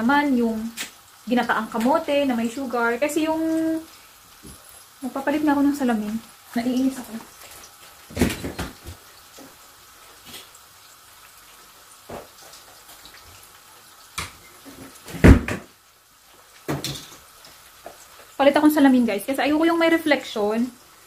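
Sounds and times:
oil frying in a wok: 0.0 - 21.0
household knocks and thumps: 8.1 - 9.0, 14.2 - 15.7, 16.7 - 17.2.

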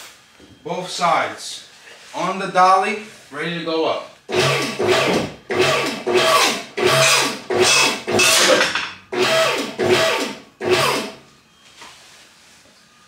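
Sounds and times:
car lift motor and hydraulic pump: 4.3 - 11.9.

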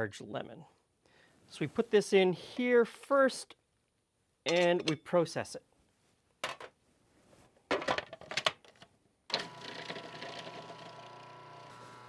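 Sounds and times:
plastic clicks and clatter: 7.7 - 9.5
food processor motor humming: 9.3 - 12.0.

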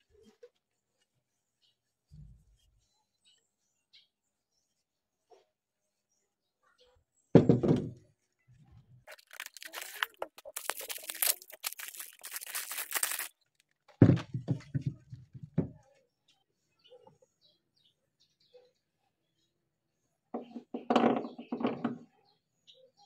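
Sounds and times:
plastic bag crinkling: 9.1 - 13.8.

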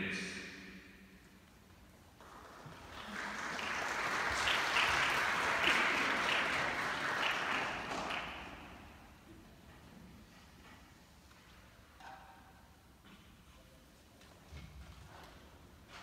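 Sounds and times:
audience applause: 2.2 - 9.1.

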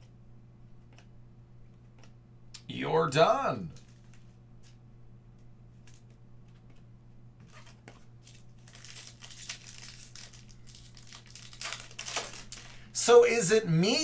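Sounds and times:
wrapper tearing and crinkling: 7.5 - 12.8.

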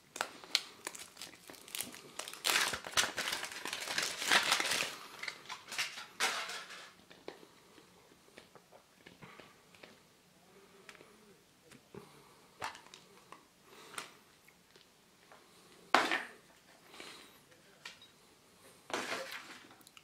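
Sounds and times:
foil wrapper crinkling: 0.1 - 7.0.

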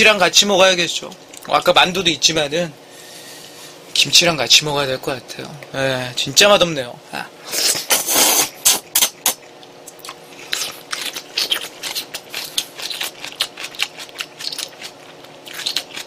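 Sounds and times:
man slurping noodles: 7.5 - 9.1
chewing smacks and clicks: 9.0 - 16.0.

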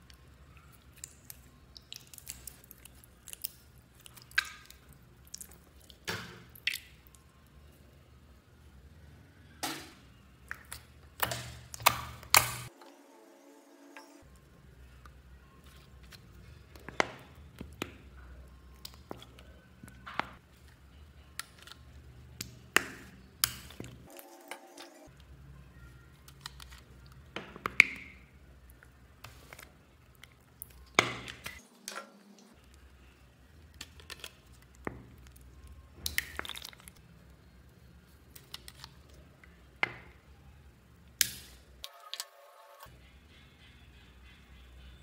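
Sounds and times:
plastic bottles clicking and crackling: 36.0 - 37.0.

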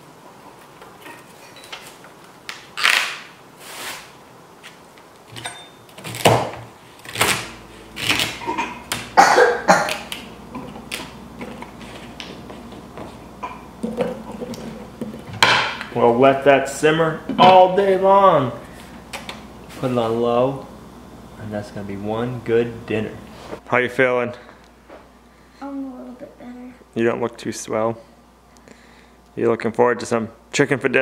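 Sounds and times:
rustling and handling noises: 9.8 - 15.4.

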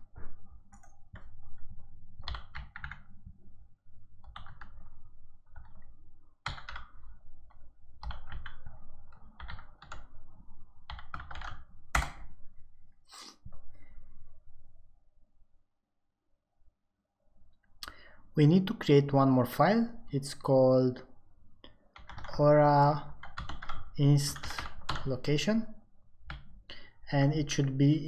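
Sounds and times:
typing on a computer keyboard: 0.7 - 3.3, 4.2 - 12.3, 21.9 - 22.4, 23.0 - 25.2, 26.2 - 26.6.

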